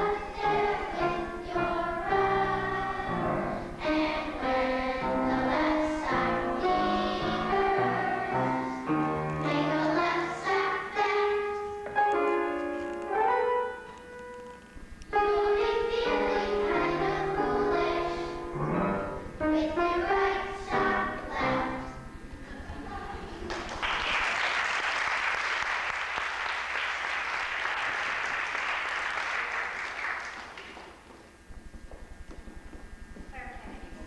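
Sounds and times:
children's choir singing: 0.0 - 12.4, 15.1 - 23.8
piano: 0.0 - 34.0
audience applauding: 23.4 - 31.2.

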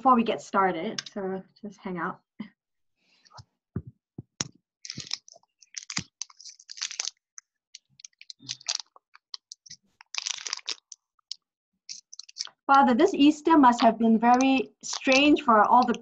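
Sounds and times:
crackling rustling noises: 4.8 - 16.0.

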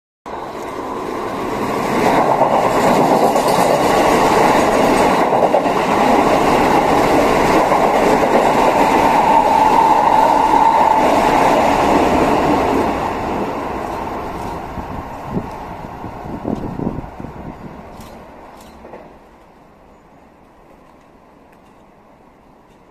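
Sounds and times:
high train whine: 0.3 - 22.9
train wheels clattering: 1.5 - 13.0, 13.7 - 14.8, 17.8 - 19.4.

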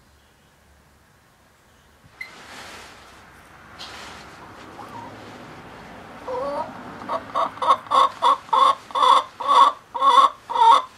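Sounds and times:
hen clucking: 4.4 - 5.2, 6.2 - 10.9.

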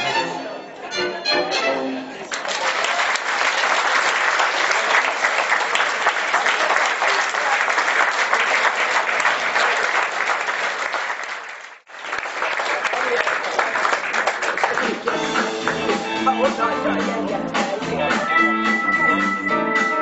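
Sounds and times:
audience applauding: 2.1 - 16.2.

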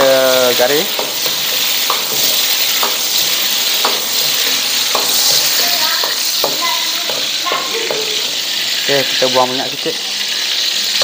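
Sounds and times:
chicken sizzling in hot oil: 0.0 - 11.0
metal ladle knocking on wok: 0.9 - 8.3.

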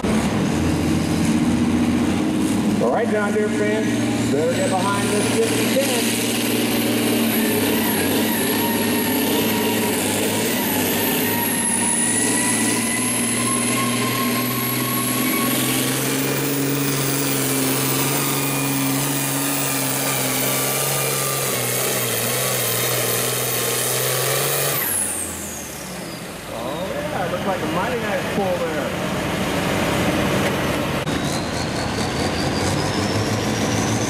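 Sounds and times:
tractor engine running hard: 0.0 - 34.0
high whistle: 7.6 - 16.7.

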